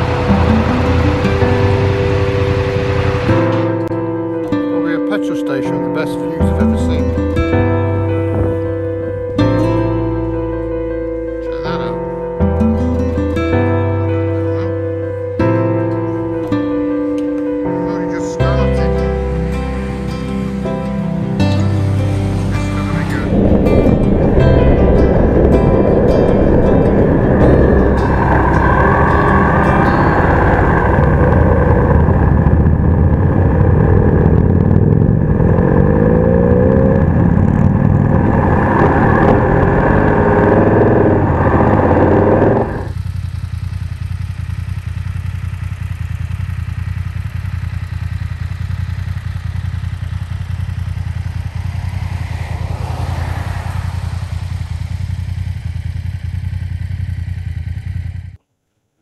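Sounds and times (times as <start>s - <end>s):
low rumble: 0.0s - 4.6s, 6.4s - 58.4s
motorcycle engine revving: 0.0s - 58.4s
wind noise: 7.4s - 10.0s, 22.3s - 43.0s, 50.9s - 56.0s.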